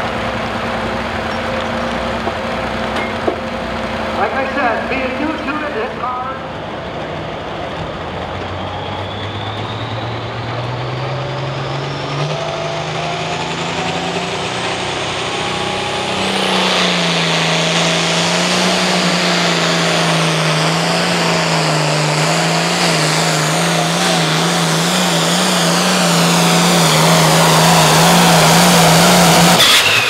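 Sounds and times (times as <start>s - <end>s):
tractor diesel engine revving: 0.0s - 30.0s
turbo whine: 4.2s - 30.0s.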